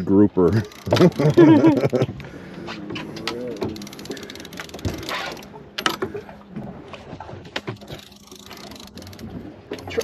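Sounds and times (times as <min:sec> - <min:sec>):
fishing reel ratcheting: 0:00.6 - 0:01.7, 0:03.2 - 0:06.0, 0:07.8 - 0:10.0.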